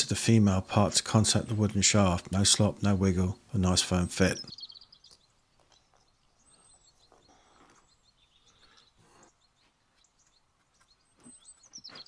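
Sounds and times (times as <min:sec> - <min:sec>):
faint high chirp: 0:04.3 - 0:12.0.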